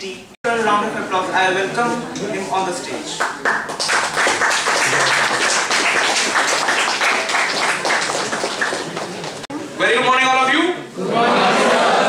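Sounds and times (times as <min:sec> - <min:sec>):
audience applauding: 0:03.2 - 0:09.5.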